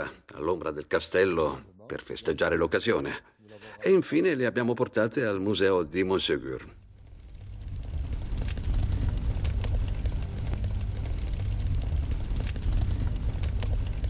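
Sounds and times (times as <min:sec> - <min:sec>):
fire crackling: 0:05.6 - 0:14.0
deep rumble: 0:06.8 - 0:14.0.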